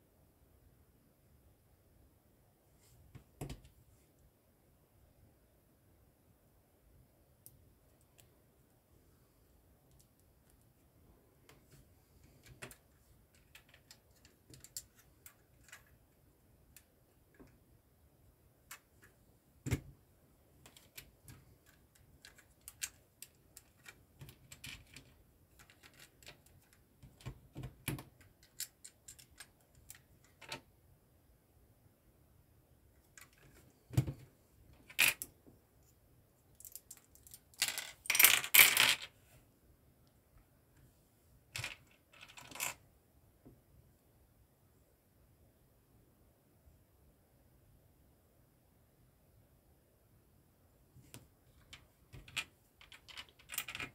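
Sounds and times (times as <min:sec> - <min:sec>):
plastic pieces rattling: 0:20.6 - 0:27.2, 0:52.1 - 0:53.9
plastic bricks clicking: 0:51.7 - 0:53.9.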